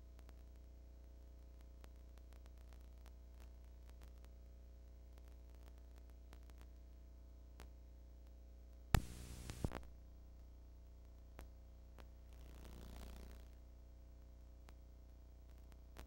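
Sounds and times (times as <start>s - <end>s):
tape playback hum: 0.0s - 16.0s
static crackle burst: 9.0s - 10.0s, 12.3s - 13.6s.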